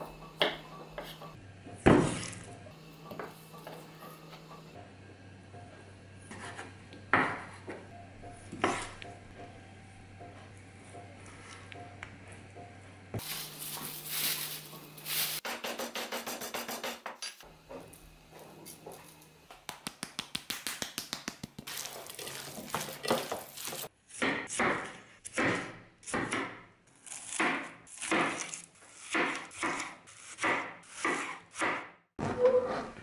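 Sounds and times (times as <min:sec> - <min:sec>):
plastic bag rustling: 0:13.2 - 0:15.4, 0:21.6 - 0:23.9.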